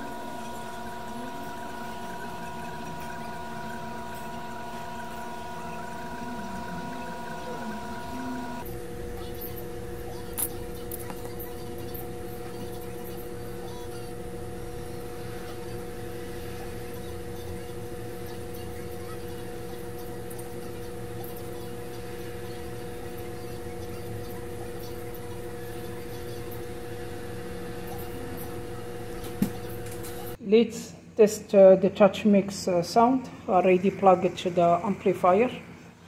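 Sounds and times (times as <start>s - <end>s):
electrical equipment hum: 0.0s - 36.0s.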